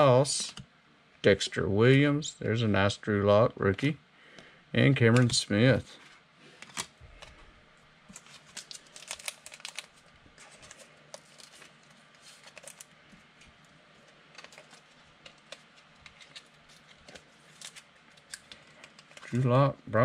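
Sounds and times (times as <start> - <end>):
plastic packaging crinkling: 8.1 - 19.5.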